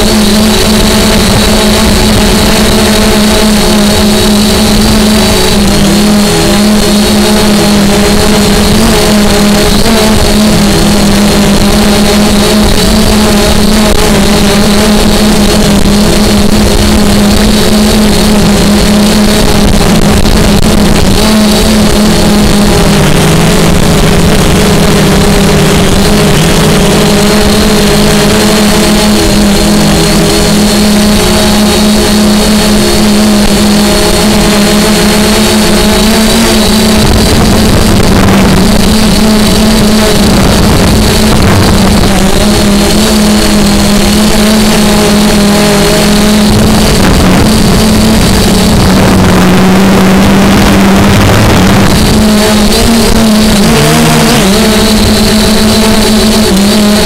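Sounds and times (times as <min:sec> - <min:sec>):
quadcopter propellers humming: 0:00.0 - 0:57.0
wind buffeting microphone: 0:36.7 - 0:42.9.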